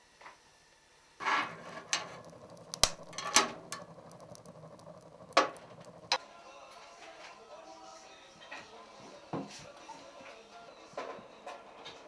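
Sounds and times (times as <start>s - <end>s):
fire popping: 1.2s - 6.2s
low rumble: 1.2s - 6.2s
fire crackling in stove: 1.2s - 12.0s.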